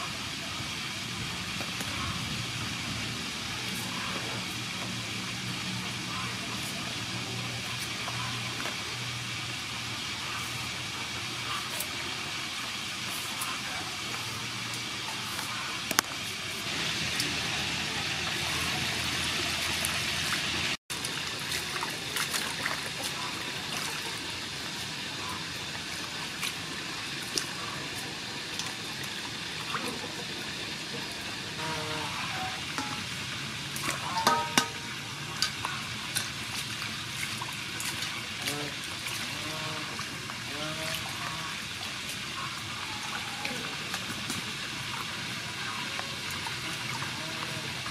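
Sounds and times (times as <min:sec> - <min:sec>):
water pouring into a steel bowl: 0:03.1 - 0:47.9
water splashing in steel bowl: 0:31.5 - 0:47.9
sharp knocks on bowl: 0:34.2 - 0:34.8.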